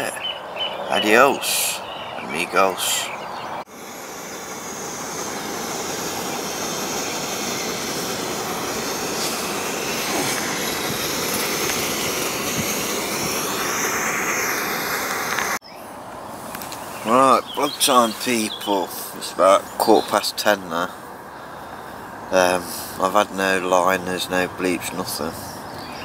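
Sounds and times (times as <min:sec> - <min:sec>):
jet engine roar: 0:01.0 - 0:15.6.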